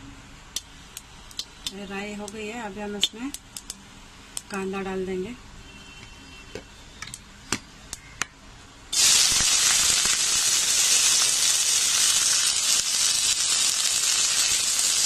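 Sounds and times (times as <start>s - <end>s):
mustard seeds popping in oil: 0.6s - 3.8s, 9.0s - 15.0s
onion sizzling in hot oil: 8.9s - 15.0s.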